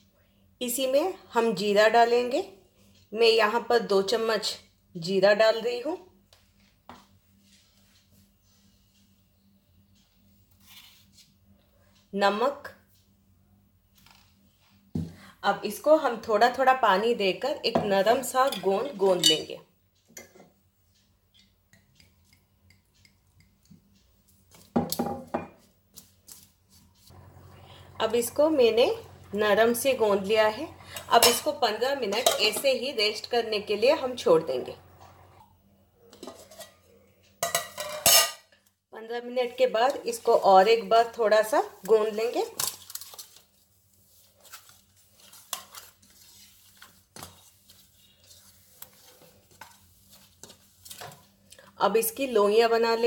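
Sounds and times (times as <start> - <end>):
hand mixing dough in metal bowl: 39.1 - 53.0.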